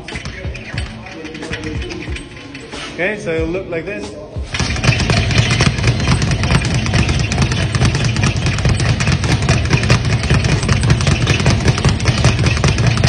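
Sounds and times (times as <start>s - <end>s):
speed bag being punched: 4.5s - 13.0s.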